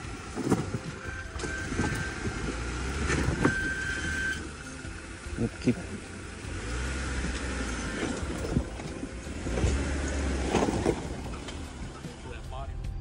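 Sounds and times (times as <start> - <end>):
low engine rumble: 0.0 - 13.0.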